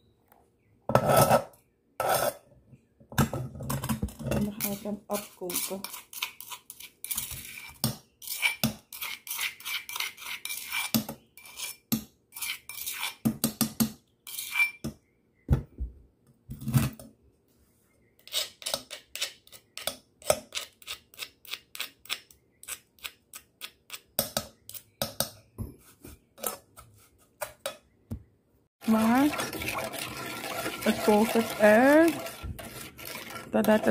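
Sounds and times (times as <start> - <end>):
metal spoon scraping pots: 0.9 - 2.5, 3.2 - 13.6, 14.3 - 14.8, 26.4 - 26.8, 28.8 - 33.9.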